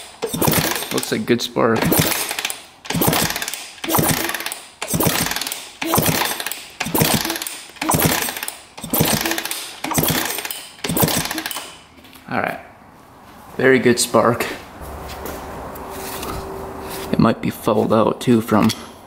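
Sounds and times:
motorcycle engine kickstarted: 0:00.0 - 0:01.1, 0:01.8 - 0:11.8.

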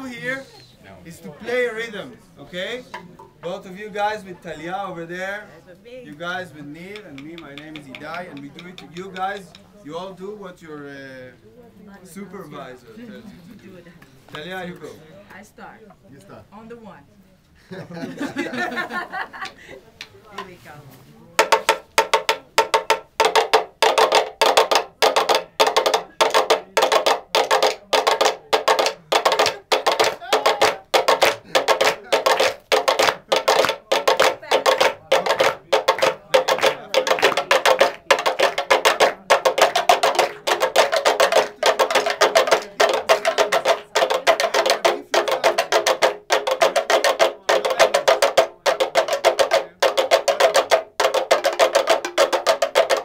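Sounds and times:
sticks beating bamboo tubes: 0:06.8 - 0:09.7, 0:21.4 - 0:53.0.

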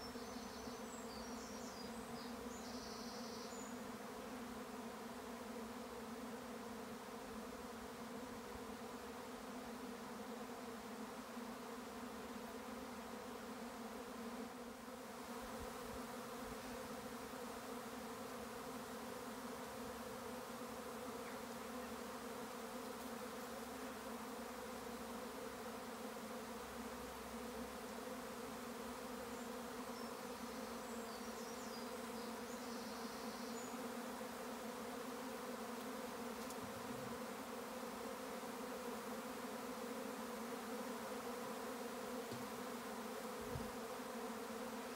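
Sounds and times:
bee swarm humming: 0:00.0 - 0:44.9.

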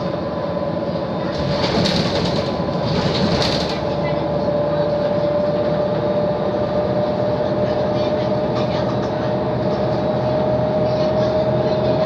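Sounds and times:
bus engine and road drone: 0:00.0 - 0:12.0.

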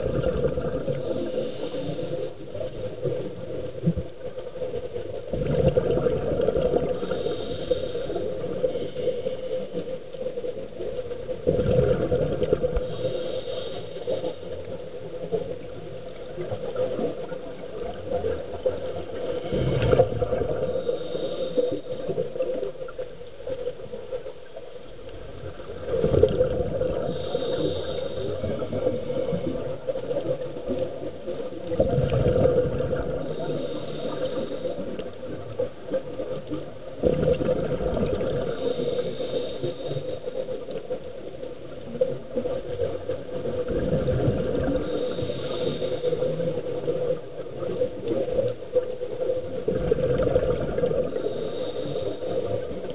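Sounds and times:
exhaled bubbles rushing: 0:00.0 - 0:01.3, 0:02.7 - 0:07.2, 0:10.8 - 0:13.0, 0:14.9 - 0:20.8, 0:25.2 - 0:33.8, 0:35.2 - 0:38.8, 0:41.7 - 0:45.3, 0:49.4 - 0:51.4
regulator inhalation hiss: 0:00.9 - 0:02.6, 0:06.7 - 0:09.8, 0:12.8 - 0:14.6, 0:20.5 - 0:22.2, 0:26.9 - 0:29.4, 0:33.2 - 0:35.0, 0:38.4 - 0:40.7, 0:44.7 - 0:47.2, 0:51.0 - 0:52.9.

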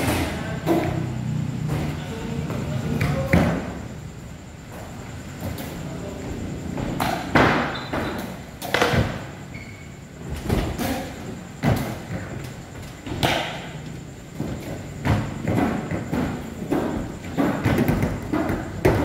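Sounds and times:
skateboard thuds on wooden ramps: 0:06.8 - 0:09.3, 0:14.3 - 0:19.0.

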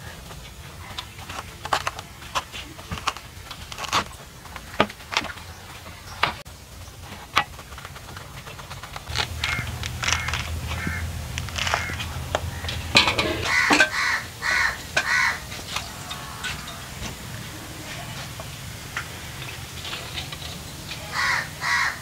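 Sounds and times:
fruit rind tearing: 0:01.3 - 0:04.1, 0:09.1 - 0:12.6
crow cawing: 0:09.2 - 0:17.0, 0:21.0 - 0:22.0.

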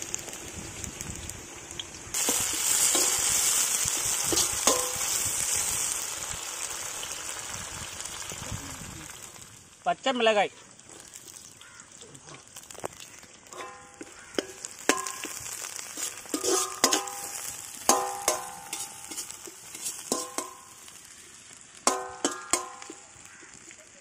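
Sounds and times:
oil sizzling: 0:00.0 - 0:24.0
ladle knocking and scraping pan: 0:02.2 - 0:03.4, 0:04.2 - 0:05.1, 0:13.5 - 0:20.7, 0:21.9 - 0:23.0.

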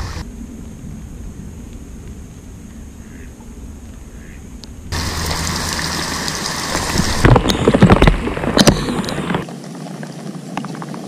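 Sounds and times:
heavy rain pouring onto water: 0:04.9 - 0:11.0
loud crackling patter: 0:05.0 - 0:11.0.

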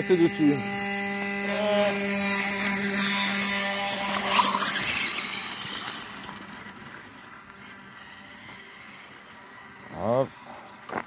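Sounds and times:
electric motor whining: 0:00.0 - 0:11.0
motor squeal: 0:00.4 - 0:06.8.

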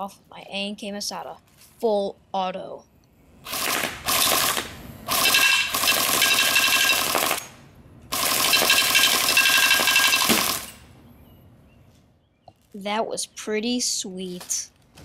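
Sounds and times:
airsoft rifle automatic fire: 0:03.5 - 0:10.8.

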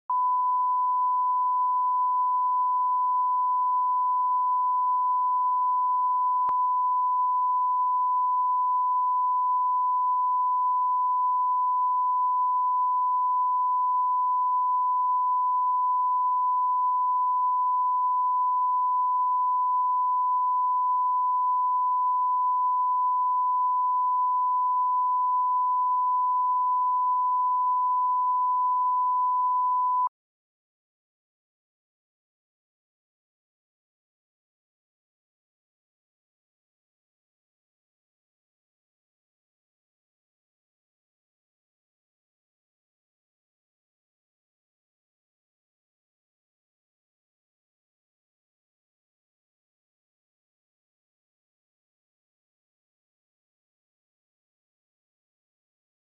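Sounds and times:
pure line-up test tone: 0:00.1 - 0:30.1.

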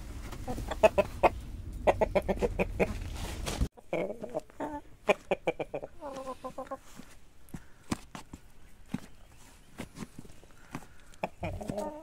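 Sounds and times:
low rumble: 0:00.0 - 0:03.7
chickens clucking: 0:00.3 - 0:12.0.

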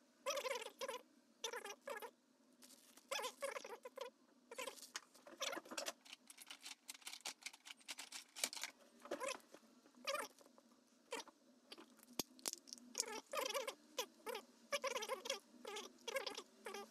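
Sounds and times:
plastic bags crinkling: 0:04.7 - 0:08.8.

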